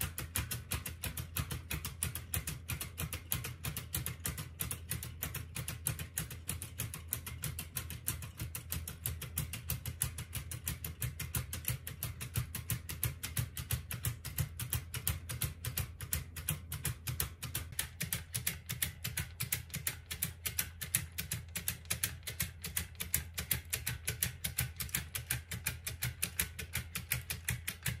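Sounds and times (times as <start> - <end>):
mechanism ticking fast: 0.0 - 28.0.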